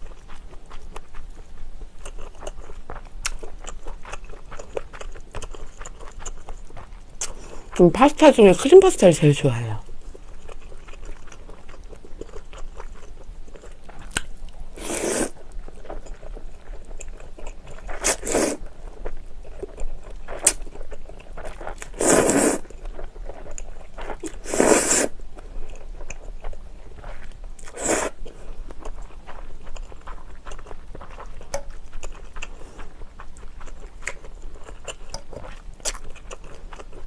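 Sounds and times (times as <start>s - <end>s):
wet chewing: 0.0s - 8.5s, 9.3s - 37.0s
noodle slurps: 14.8s - 15.4s, 17.9s - 18.6s, 21.8s - 22.7s, 24.2s - 25.1s, 27.7s - 28.2s.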